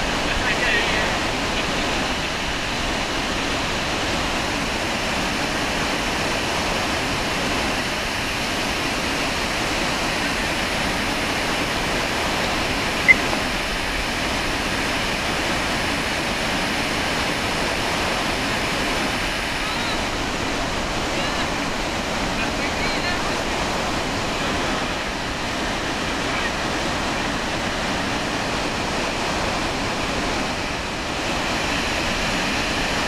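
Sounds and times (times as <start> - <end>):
waterfall roaring: 0.0 - 33.0
short high blip: 13.0 - 13.4.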